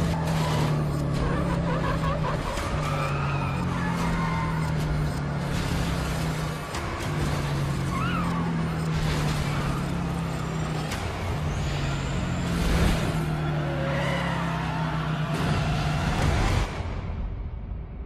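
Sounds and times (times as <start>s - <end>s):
tyre squeals: 0.0s - 5.4s.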